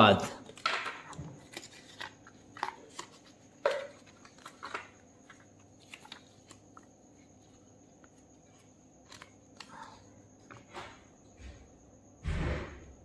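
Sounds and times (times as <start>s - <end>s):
plastic and paper rustling: 0.4s - 10.7s.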